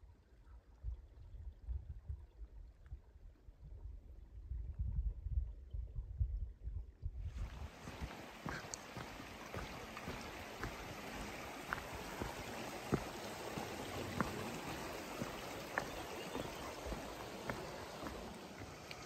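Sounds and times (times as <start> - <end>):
creek flowing: 7.3 - 19.0.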